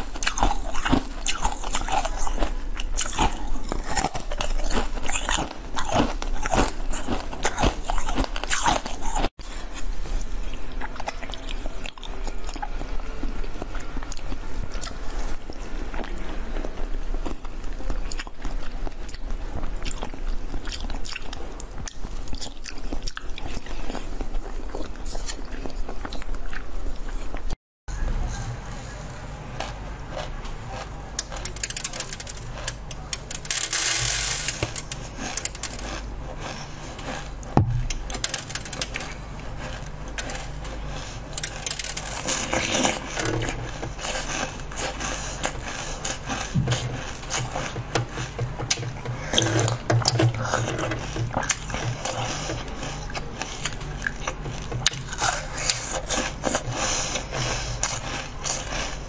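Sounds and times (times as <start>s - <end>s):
wet chewing: 0.0s - 27.6s, 28.4s - 59.0s
slurping jelly: 28.2s - 59.0s
biting soft jelly: 28.3s - 59.0s.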